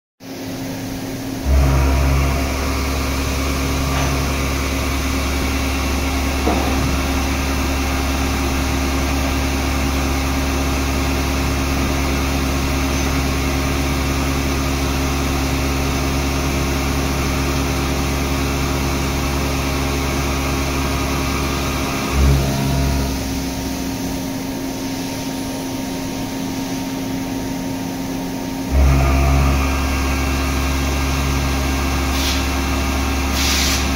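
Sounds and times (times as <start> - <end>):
low hum: 0.5 - 32.1
milling machine cutting metal: 1.4 - 24.2.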